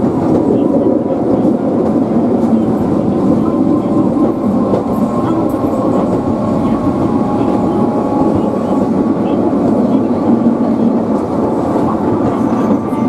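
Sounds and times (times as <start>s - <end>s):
tram wheels and motor rumbling: 0.0s - 13.0s.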